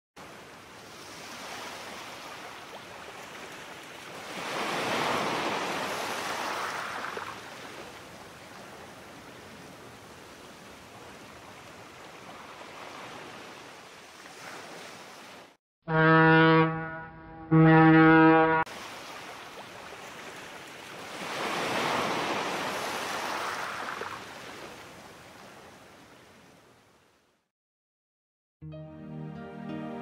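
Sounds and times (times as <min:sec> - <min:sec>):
wave breaking: 0:04.4 - 0:07.5.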